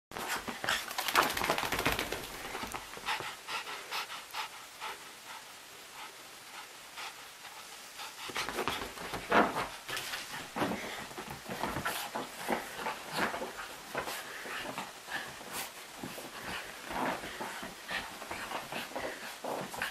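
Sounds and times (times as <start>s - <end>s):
puppy panting: 0.2s - 19.9s
puppy moving across sofa: 7.6s - 19.9s.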